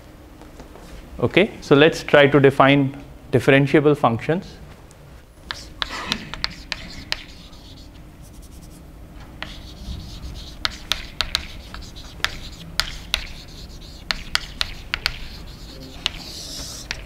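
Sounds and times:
chalk tapping on blackboard: 5.5s - 8.8s, 9.4s - 17.0s
chalk scratching: 5.5s - 17.0s.

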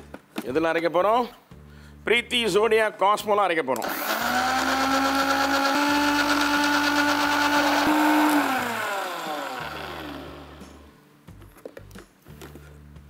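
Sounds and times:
mixer grinder whining: 3.8s - 10.9s
motor winding down: 3.8s - 10.9s.

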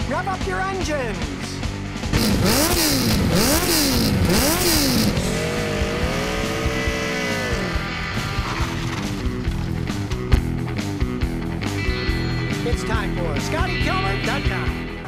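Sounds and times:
motorcycle engine revving: 1.9s - 11.9s.

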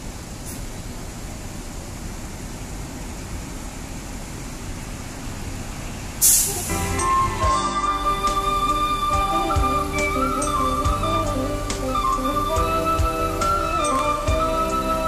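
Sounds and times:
bus diesel engine rumbling: 0.0s - 15.0s
short loud hiss: 6.1s - 12.5s.

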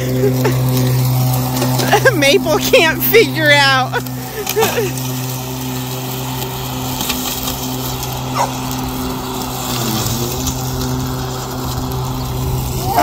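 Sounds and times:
riding mower motor humming: 0.0s - 13.0s
dog yelping: 8.3s - 8.6s, 12.8s - 13.0s.

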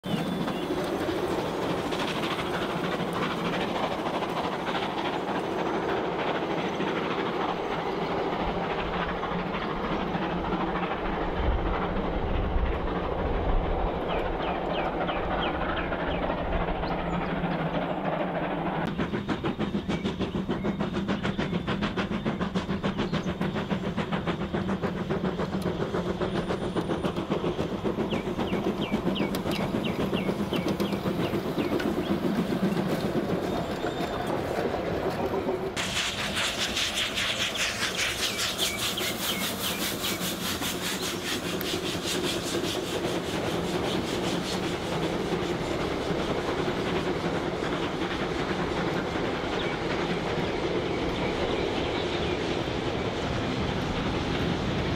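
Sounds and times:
model train rolling on track: 0.0s - 54.9s
fast even clicking: 18.9s - 33.4s.

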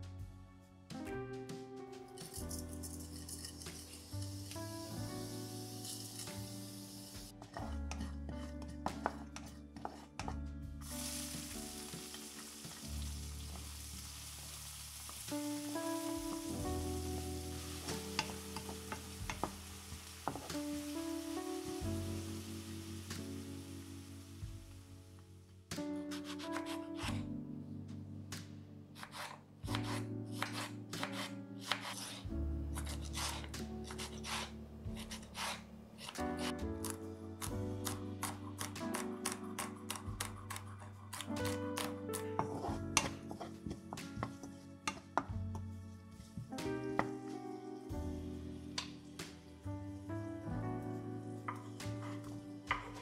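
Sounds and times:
soft background music: 0.0s - 53.0s
seeds sizzling in hot oil: 2.2s - 7.4s, 10.8s - 25.1s
onion frying in oil: 2.9s - 7.3s, 10.8s - 24.8s
knife slicing tomato on board: 26.0s - 27.3s, 29.0s - 45.1s, 51.5s - 53.0s.

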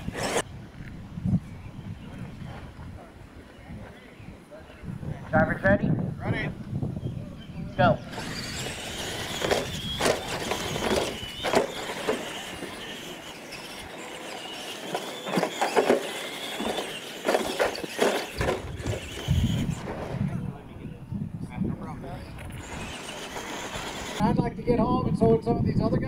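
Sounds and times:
rc truck motor whine: 0.0s - 0.4s, 8.0s - 20.3s, 22.0s - 24.3s
tyres crunching over dirt: 8.1s - 20.0s, 22.6s - 24.2s.

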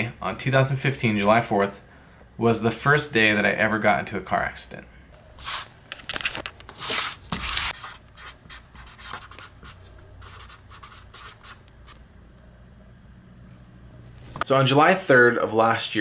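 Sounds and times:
scratchy rustling strokes: 5.3s - 5.8s, 6.7s - 11.6s.

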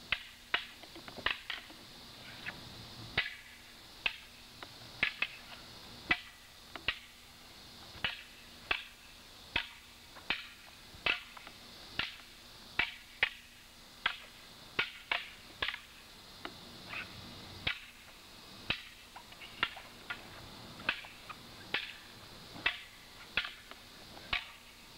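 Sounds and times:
wooden staffs clacking: 18.7s - 24.7s.

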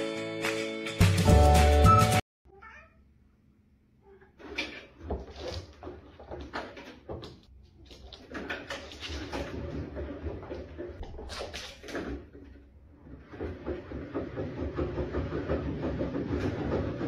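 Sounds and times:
background music: 0.0s - 2.2s
cats meowing: 2.5s - 3.0s
paws thumping on exercise wheel: 4.3s - 17.0s.

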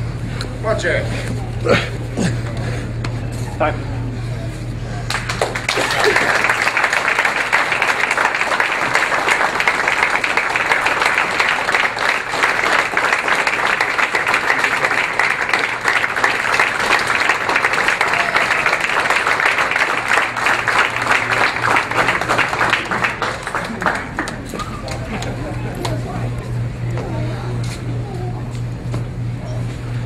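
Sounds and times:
crowd applauding: 5.0s - 26.9s.

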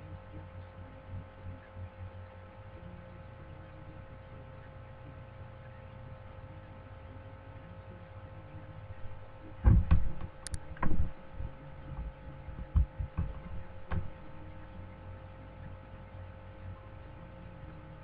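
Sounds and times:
electrical hum: 0.0s - 18.0s
low dull thumps: 8.8s - 17.0s.

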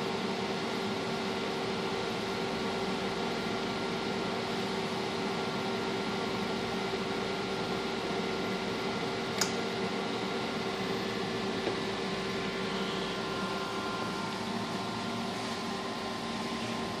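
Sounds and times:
fan whir and hum: 0.0s - 17.0s
sharp click: 9.4s - 9.6s.

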